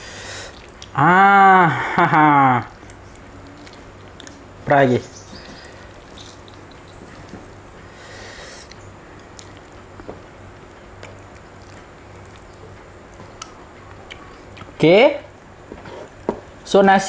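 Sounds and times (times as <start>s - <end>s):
wet squishes of lemon squeezing: 0.0s - 1.0s, 2.8s - 8.0s, 8.6s - 14.7s.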